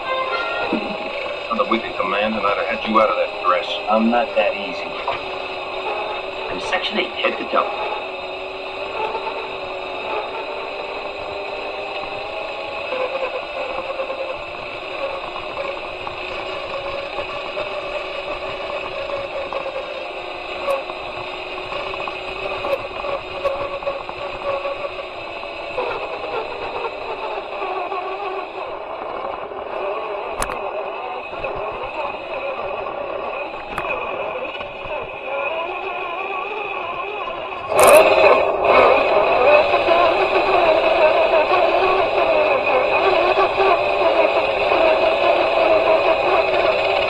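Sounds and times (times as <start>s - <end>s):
electric motor whining: 0.0s - 47.0s.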